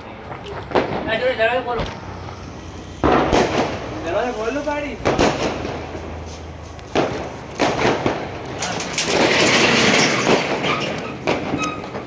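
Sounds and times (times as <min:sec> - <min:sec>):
firecracker rushing crackling: 0:00.1 - 0:12.0
firecracker bangs: 0:00.6 - 0:01.7, 0:03.0 - 0:06.2, 0:06.9 - 0:12.0.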